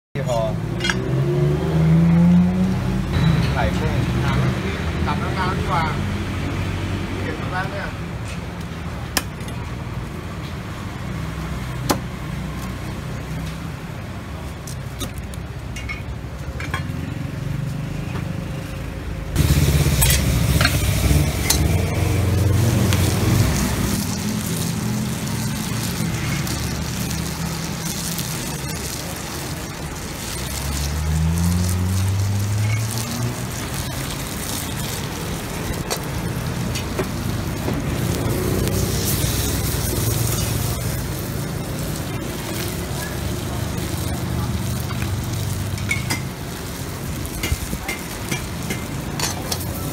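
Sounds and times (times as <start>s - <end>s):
food sizzling: 0.2s - 49.9s
gas burners roaring: 0.2s - 49.9s
traffic engines running: 0.2s - 49.9s
vehicle speeding up: 0.6s - 7.6s, 16.9s - 47.4s.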